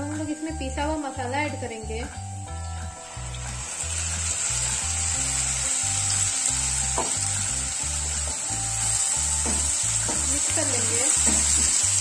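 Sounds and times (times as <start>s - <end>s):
paste sizzling in hot oil: 2.8s - 12.0s.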